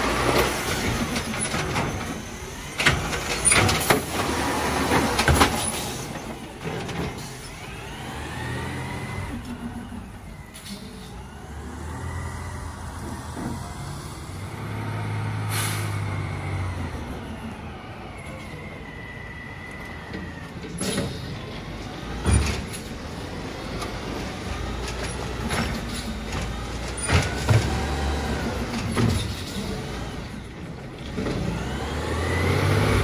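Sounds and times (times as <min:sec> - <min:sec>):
garbage truck engine revving: 0:00.0 - 0:33.0
hydraulic arm lifting cart: 0:00.0 - 0:33.0.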